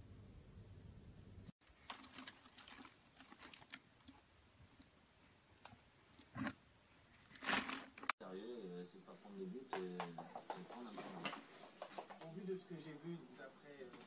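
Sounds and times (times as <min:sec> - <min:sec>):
plastic rustling and crinkling: 0:01.6 - 0:04.3, 0:07.1 - 0:08.2.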